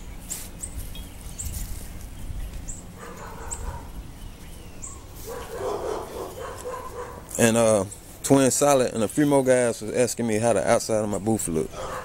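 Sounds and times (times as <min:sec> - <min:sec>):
animal calling: 0:03.0 - 0:04.0, 0:04.7 - 0:07.4.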